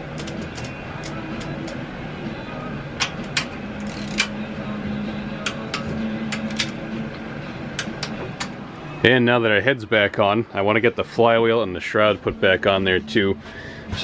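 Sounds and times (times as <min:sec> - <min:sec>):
steady low hum: 0:00.0 - 0:14.0
torque wrench clicks: 0:00.2 - 0:01.8, 0:03.0 - 0:04.3.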